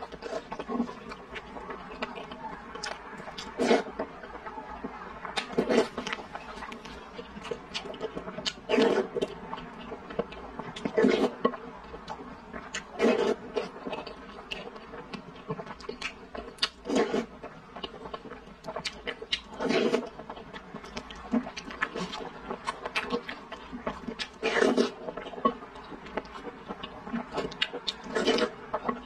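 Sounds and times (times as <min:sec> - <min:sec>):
wet chewing and mouth clicks: 0:00.0 - 0:29.0
slurping from a spoon: 0:03.5 - 0:03.9, 0:05.6 - 0:06.1, 0:08.7 - 0:09.2, 0:13.0 - 0:13.7, 0:16.8 - 0:17.3, 0:19.5 - 0:20.1, 0:24.3 - 0:25.0, 0:28.0 - 0:28.5.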